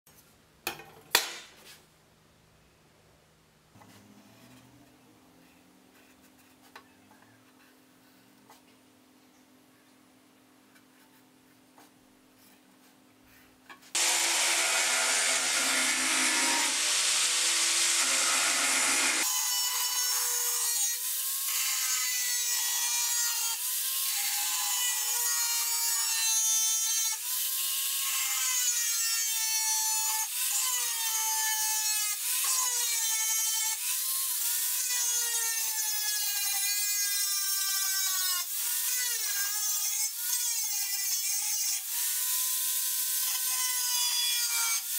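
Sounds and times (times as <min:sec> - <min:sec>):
angle grinder cutting steel: 0:14.0 - 0:44.9.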